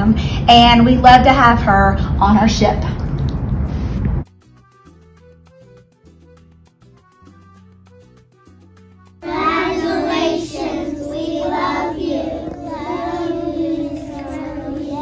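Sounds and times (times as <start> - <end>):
quiet background music: 4.4 - 15.0
children singing in unison: 9.2 - 15.0.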